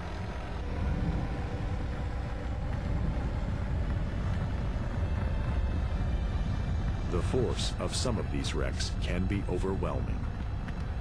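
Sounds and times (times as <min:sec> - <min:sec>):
low rumble of explosion: 0:00.0 - 0:11.0.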